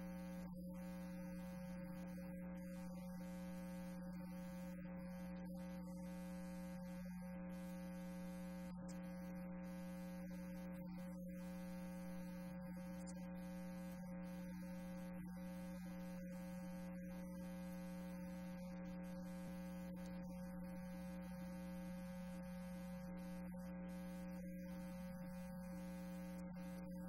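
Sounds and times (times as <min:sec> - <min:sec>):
electrical mains hum: 0:00.0 - 0:27.0.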